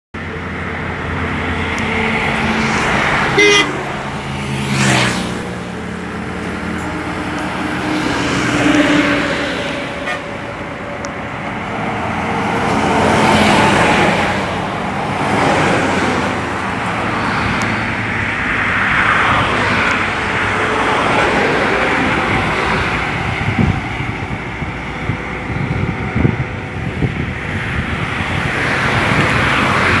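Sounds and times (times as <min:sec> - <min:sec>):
highway traffic passing: 0:00.2 - 0:30.0
short horn toot: 0:03.4 - 0:03.9.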